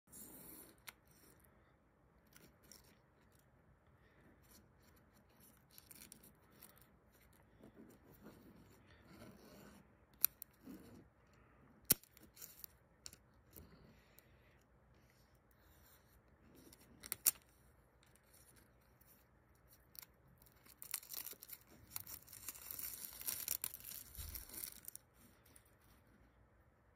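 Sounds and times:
plastic wrap crinkling: 20.5s - 25.1s.

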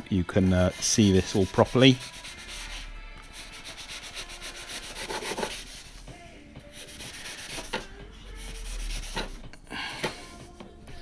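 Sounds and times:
knife scraping foam: 0.8s - 5.9s.

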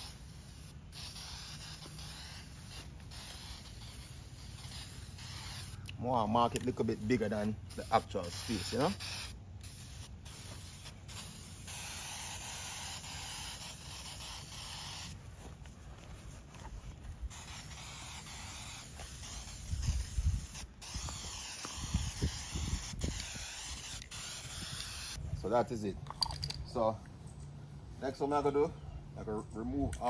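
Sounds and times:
spray paint can hissing: 0.0s - 15.2s, 17.1s - 25.2s.

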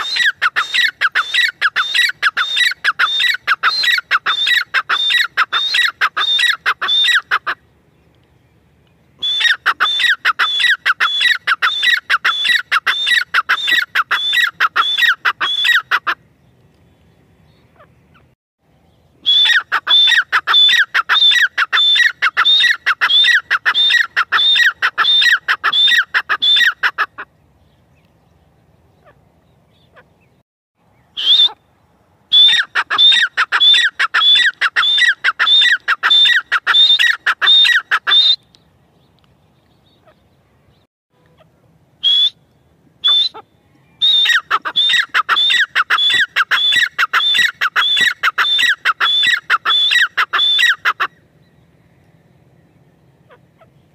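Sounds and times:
francolin calling: 0.0s - 7.6s, 9.2s - 16.2s, 19.2s - 27.1s, 32.3s - 38.6s, 39.8s - 53.9s.

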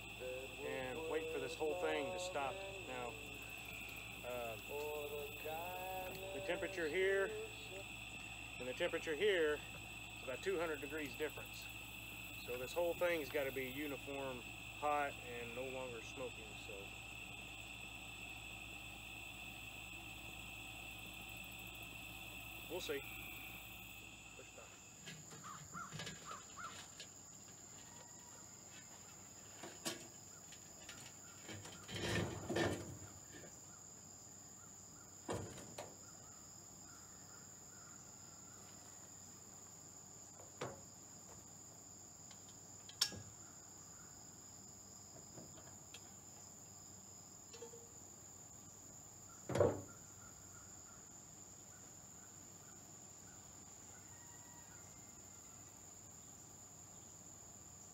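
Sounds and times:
crickets chirping: 0.0s - 57.9s
knocks on a metal table: 49.5s - 49.9s.

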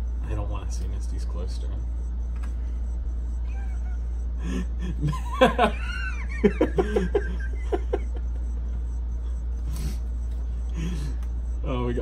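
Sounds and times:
steady low hum: 0.0s - 12.0s
men laughing: 4.4s - 9.4s.

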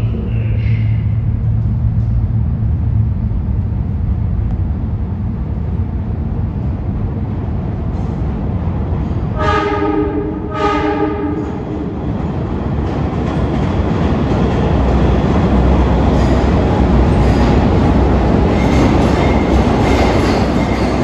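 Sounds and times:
subway train rumbling: 0.0s - 21.0s
train horn: 9.4s - 11.8s.

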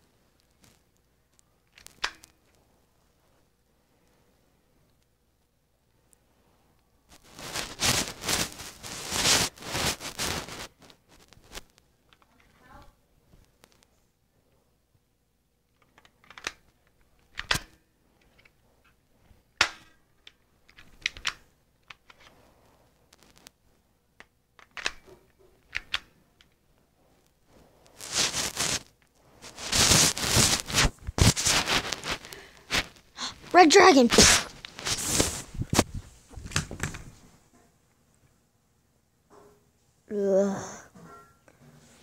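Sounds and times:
bedding rustling: 7.1s - 11.8s, 27.0s - 37.5s.

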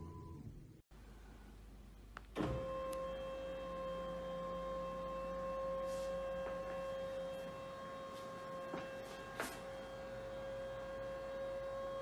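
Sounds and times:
lift motor whirring: 2.3s - 12.0s.

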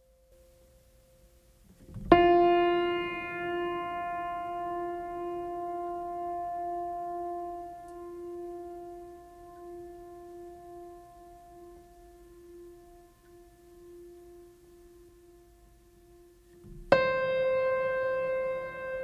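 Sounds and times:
piano-like note ringing: 1.9s - 19.0s.

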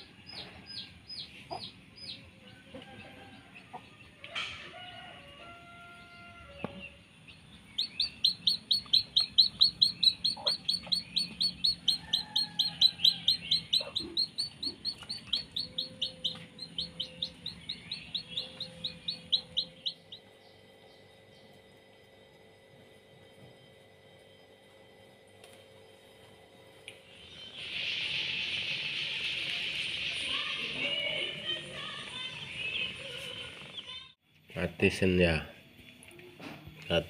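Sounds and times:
chick peeping: 0.0s - 2.8s, 6.0s - 20.4s.

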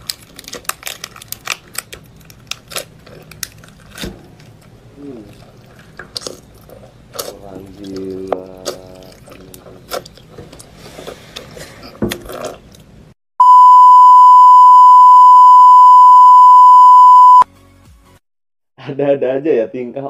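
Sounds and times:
person chewing shellfish: 0.0s - 13.0s
high-pitched test tone beep: 13.4s - 17.4s.

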